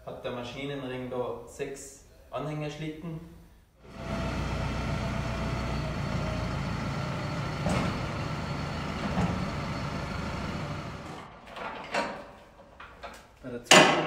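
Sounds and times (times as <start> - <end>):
tractor diesel engine running: 3.8 - 11.4.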